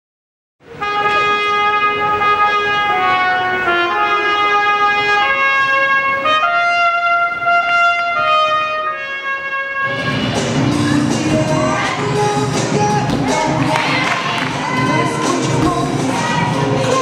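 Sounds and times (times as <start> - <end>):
solo trumpet melody: 0.6 - 10.4.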